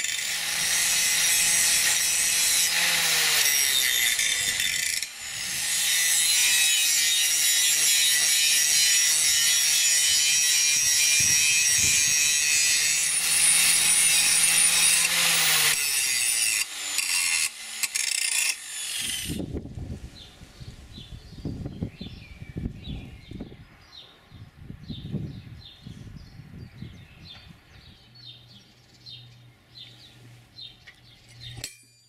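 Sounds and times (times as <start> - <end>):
angle grinder cutting steel: 0.0 - 19.4.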